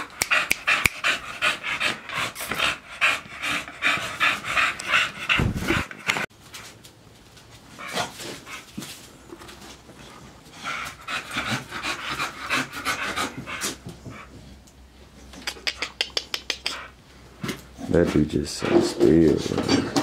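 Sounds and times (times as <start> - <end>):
dogs panting quickly: 0.0 - 6.3, 10.5 - 14.6.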